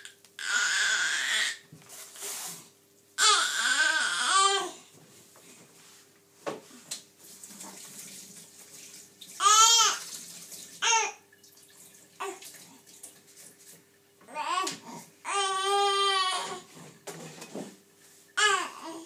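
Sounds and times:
baby fussing in high wails: 0.4 - 1.6, 14.3 - 16.7.

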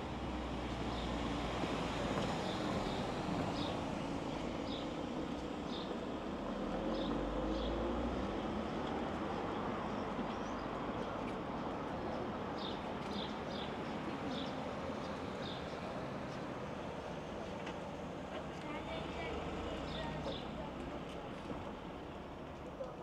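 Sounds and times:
traffic rumble: 0.0 - 23.0.

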